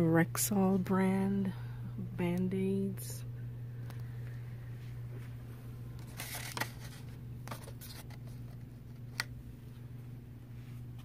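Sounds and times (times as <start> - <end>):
steady low hum: 0.0 - 11.0
card tag rustling: 6.0 - 9.4.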